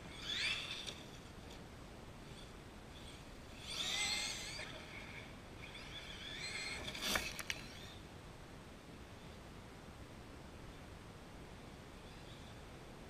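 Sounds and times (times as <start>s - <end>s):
electric motor whining: 0.0s - 1.6s, 2.2s - 8.0s.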